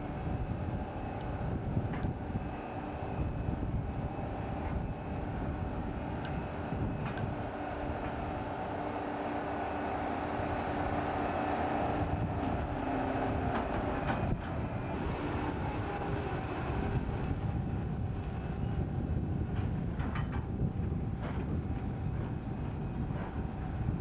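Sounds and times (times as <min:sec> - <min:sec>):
diesel crane droning: 0:00.0 - 0:24.0.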